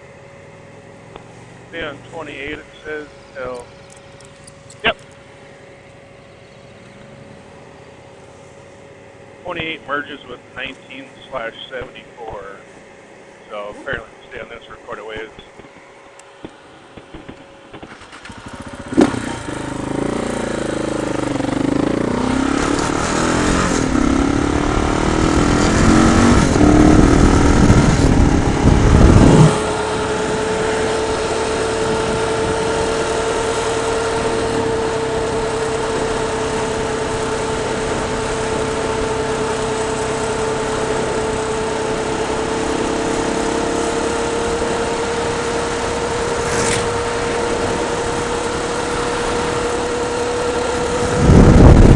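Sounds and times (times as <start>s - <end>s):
motorcycle engine: 0.0s - 51.9s
wind noise: 22.6s - 30.7s, 31.8s - 33.1s, 34.1s - 36.2s, 46.2s - 49.7s, 50.8s - 51.9s.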